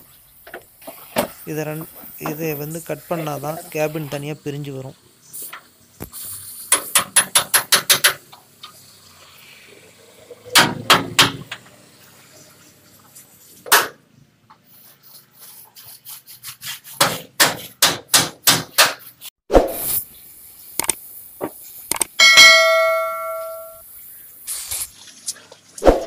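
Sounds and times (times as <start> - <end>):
hammer striking steel: 22.2 - 23.8.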